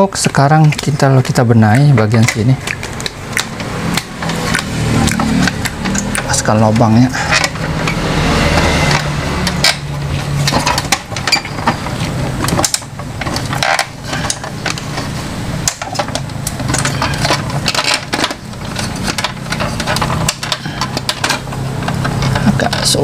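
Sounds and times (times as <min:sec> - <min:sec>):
low traffic engine hum: 0:00.0 - 0:23.0.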